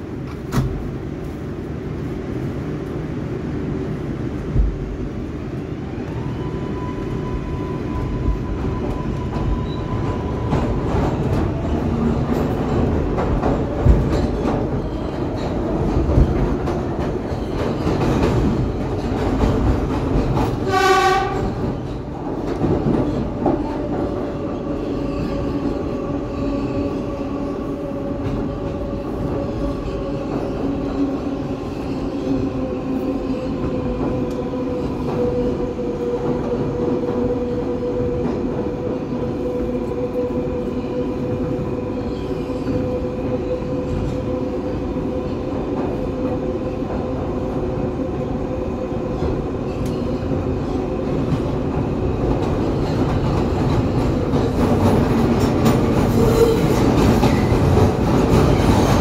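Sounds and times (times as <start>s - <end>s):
subway train rumble: 0.0s - 59.0s
train horn blast: 20.6s - 21.7s.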